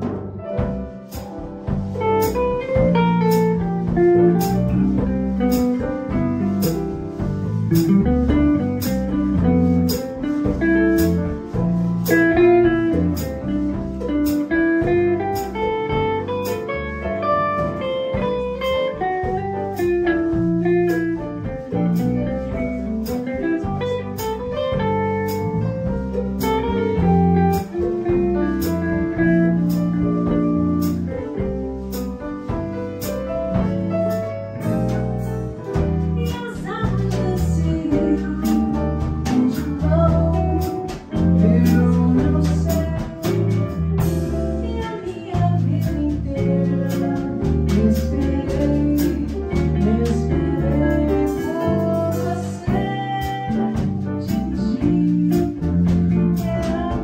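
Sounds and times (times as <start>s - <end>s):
drum kit with cymbal strikes: 0.0s - 57.0s
electric bass: 0.0s - 57.0s
guitar: 0.0s - 57.0s
piano: 0.0s - 57.0s.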